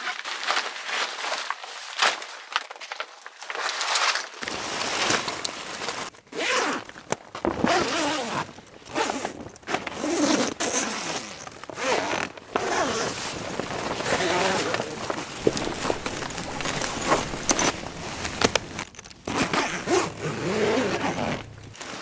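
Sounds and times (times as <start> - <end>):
zipper rasping: 7.6 - 22.0
plastic sheet crinkling: 11.8 - 20.0.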